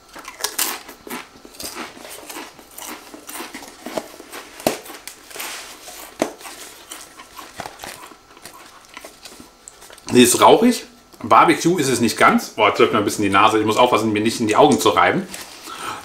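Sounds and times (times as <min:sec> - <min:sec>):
crisp being chewed: 0:00.0 - 0:10.1.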